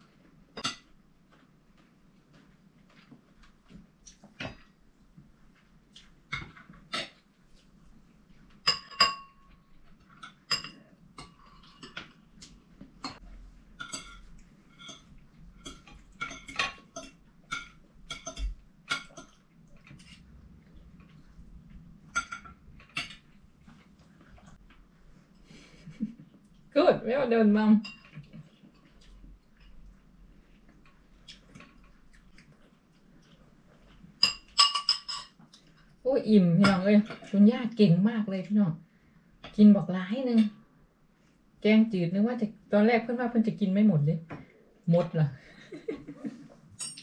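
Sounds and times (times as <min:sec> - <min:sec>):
cutlery clinking on plates: 0:08.6 - 0:12.2, 0:13.8 - 0:20.2, 0:22.1 - 0:23.3, 0:34.2 - 0:35.6, 0:46.8 - 0:47.0.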